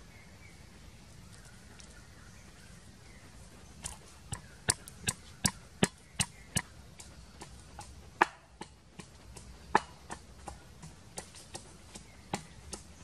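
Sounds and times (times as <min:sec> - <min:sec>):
wooden pestle pounding in mortar: 0:03.8 - 0:06.7.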